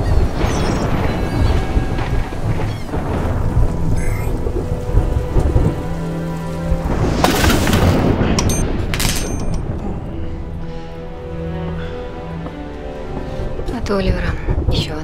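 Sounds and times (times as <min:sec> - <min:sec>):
sharp thunder cracks: 0:00.0 - 0:09.8
heavy rain: 0:00.0 - 0:15.0
thunder rumbling: 0:00.0 - 0:15.0.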